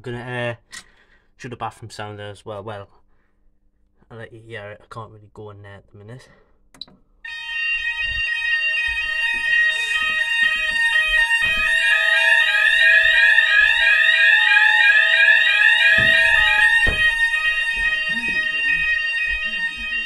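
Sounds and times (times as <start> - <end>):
fire alarm sounders: 7.2 - 20.0
low knock: 15.9 - 18.0.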